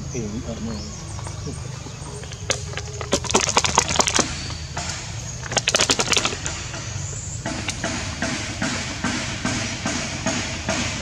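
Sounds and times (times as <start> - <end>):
dry leaves and twigs crackling: 0.0 - 8.2
steady low rumble: 0.0 - 11.0.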